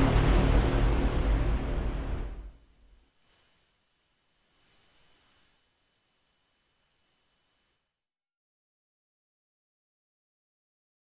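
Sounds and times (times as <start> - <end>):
high-pitched electronic tones: 1.8 - 8.2.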